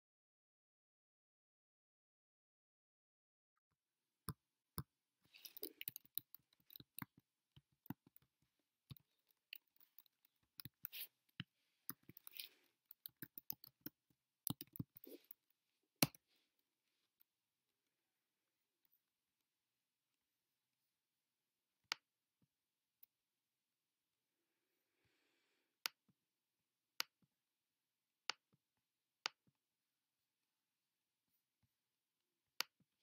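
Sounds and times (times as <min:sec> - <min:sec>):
mouse clicking: 0:05.3 - 0:07.2, 0:08.9 - 0:11.1, 0:11.9 - 0:15.4
keyboard typing: 0:11.9 - 0:15.3.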